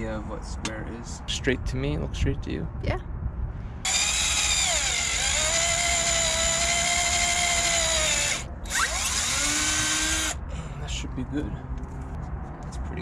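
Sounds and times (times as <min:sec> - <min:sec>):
drill boring into wood: 0:03.9 - 0:10.4.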